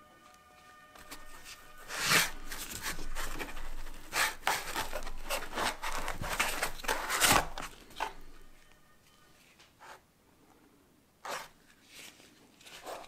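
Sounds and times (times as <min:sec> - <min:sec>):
foam scraping and rubbing: 0:01.0 - 0:08.2.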